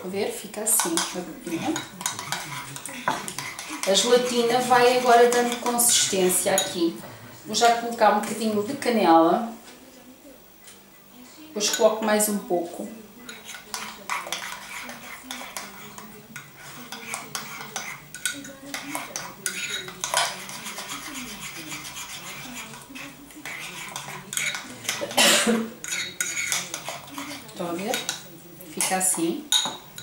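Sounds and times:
metal spoon scraping ceramic bowl: 0.7 - 6.8, 13.3 - 25.2, 25.8 - 28.2.

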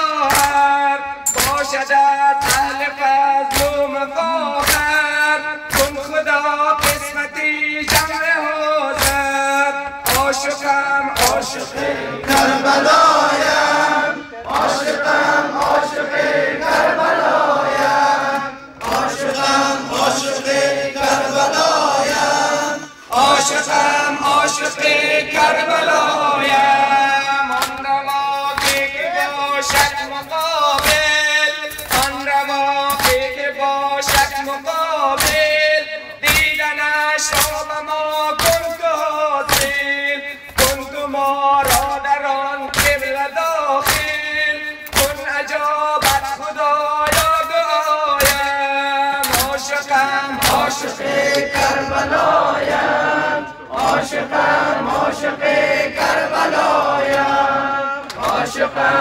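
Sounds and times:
man singing a lament: 0.0 - 16.3, 17.4 - 59.0
chest beating slaps: 0.2 - 0.7, 1.3 - 2.9, 3.5 - 8.3, 8.9 - 13.7, 14.4 - 16.9, 27.5 - 52.8.

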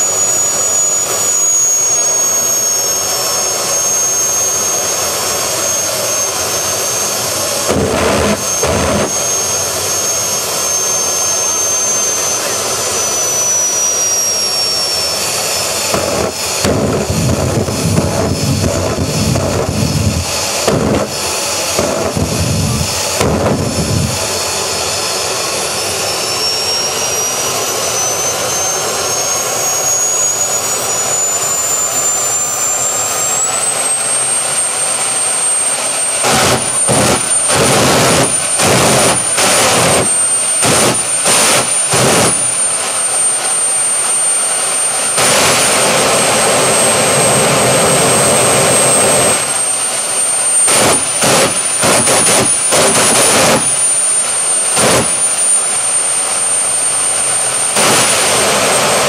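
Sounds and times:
jet engine whine: 0.0 - 59.0
combustion roar: 4.4 - 12.8, 15.8 - 24.6, 35.9 - 55.6.

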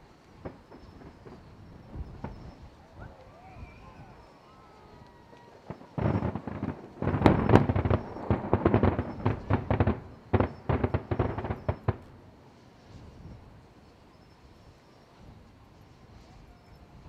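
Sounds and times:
firework shells bursting: 0.2 - 2.8, 5.0 - 13.1.

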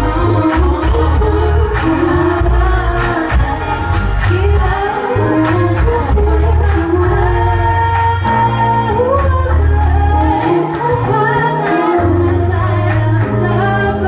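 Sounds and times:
deep bass: 0.0 - 14.0
synthesizer keyboards: 0.0 - 14.0
women singing into microphones: 0.0 - 14.0.

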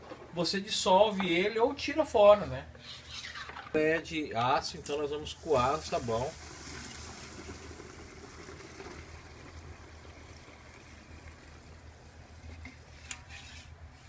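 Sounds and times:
liquid soap trickling into bucket: 4.8 - 13.0.

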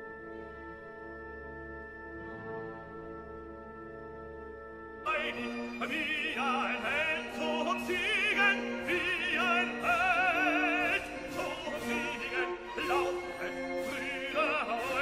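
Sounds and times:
orchestral accompaniment: 0.0 - 15.0
operatic voice singing: 5.0 - 15.0.

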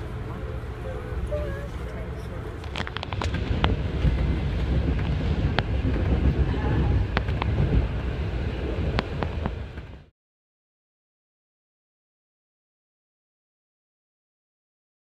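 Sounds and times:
moving train rumble: 0.0 - 10.1.

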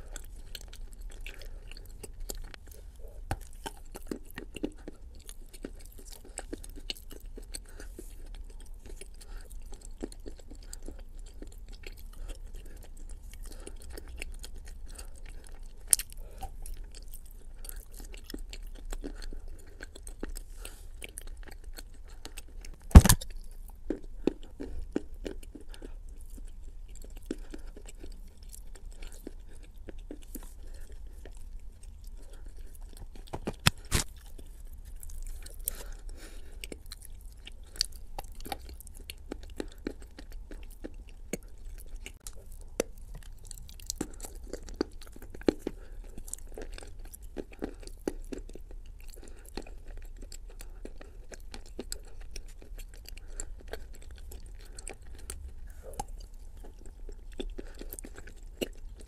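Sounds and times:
person chewing clay: 0.0 - 59.0
sharp loud bites: 22.8 - 23.2
mouth clicks: 22.8 - 23.3.

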